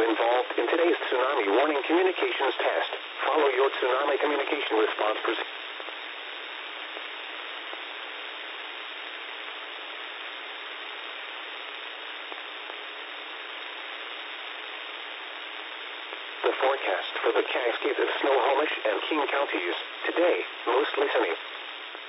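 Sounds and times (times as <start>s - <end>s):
radio static hiss: 0.0s - 22.0s.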